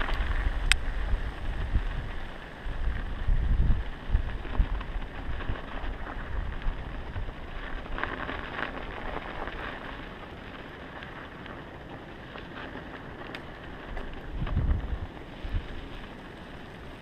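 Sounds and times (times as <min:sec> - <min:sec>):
bike tyres crackling on snow: 0:00.0 - 0:17.0
wind buffeting microphone: 0:00.0 - 0:17.0.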